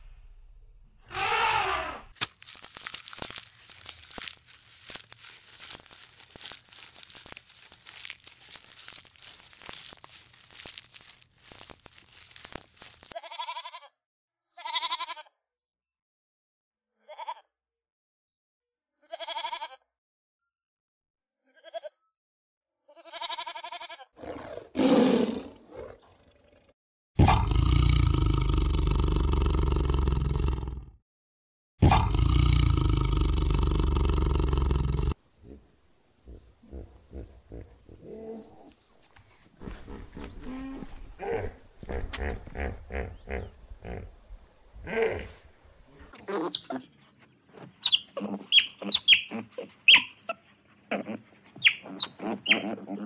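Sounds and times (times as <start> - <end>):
animal calls: 1.1 - 2.2, 39.6 - 44.2, 44.8 - 53.0
faint crackling: 2.2 - 13.2.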